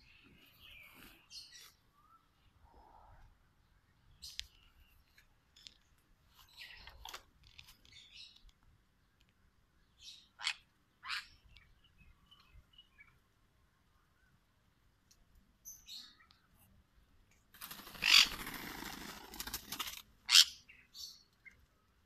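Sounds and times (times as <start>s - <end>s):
bird chirping: 0.0s - 2.8s, 9.8s - 13.3s, 20.3s - 21.9s.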